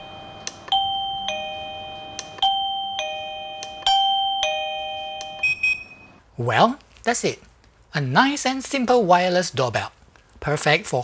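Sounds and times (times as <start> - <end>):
doorbell chiming ding-dong: 0.0 - 6.2.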